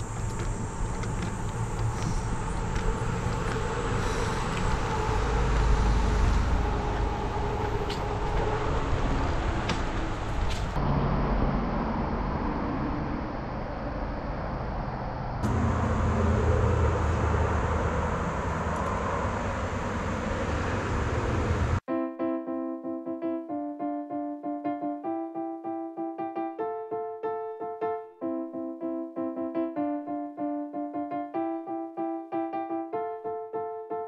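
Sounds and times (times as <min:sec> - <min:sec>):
bicycle tyres rolling on trail: 0:00.0 - 0:10.8.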